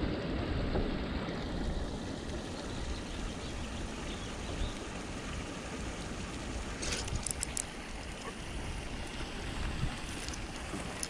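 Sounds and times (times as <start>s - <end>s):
wind buffeting microphone: 6.8s - 11.0s.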